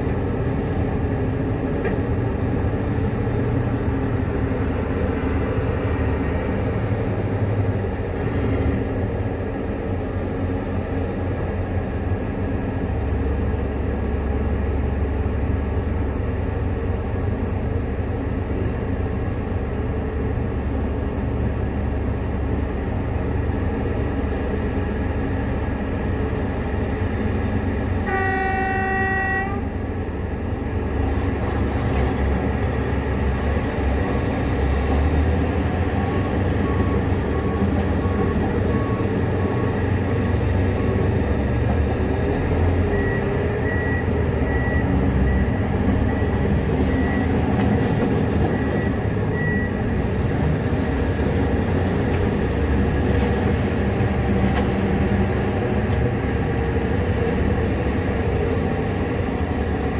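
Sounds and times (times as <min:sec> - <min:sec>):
large diesel engines running: 0:00.0 - 0:59.9
truck horn blast: 0:28.0 - 0:29.7.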